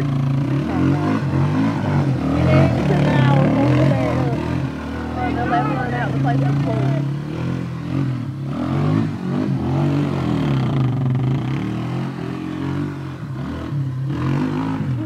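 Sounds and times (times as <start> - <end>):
atv engine revving: 0.0 - 15.0.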